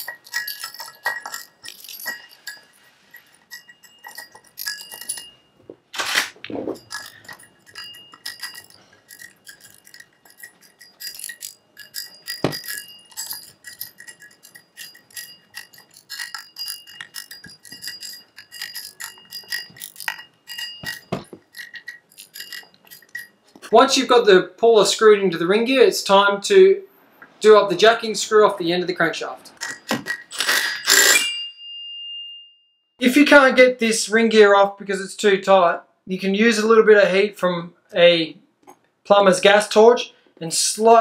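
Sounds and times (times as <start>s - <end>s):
light metallic ringing: 0.0s - 5.8s, 6.7s - 23.8s, 29.6s - 32.8s
screws clicking against metal gear: 6.8s - 23.3s.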